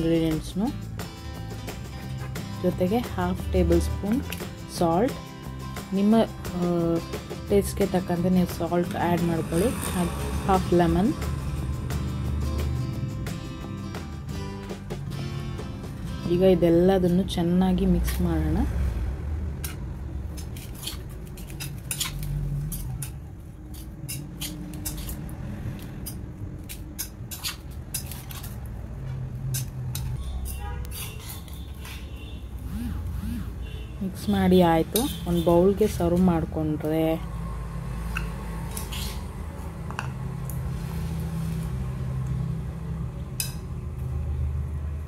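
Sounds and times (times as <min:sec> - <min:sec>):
spoon scraping pot: 0:20.4 - 0:25.2, 0:29.5 - 0:32.0.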